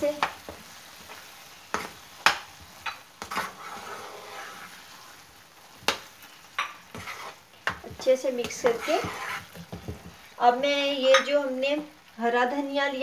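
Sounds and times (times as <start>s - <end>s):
faint sizzle of frying: 0.0s - 13.0s
spatula scraping a frying pan: 0.1s - 10.3s.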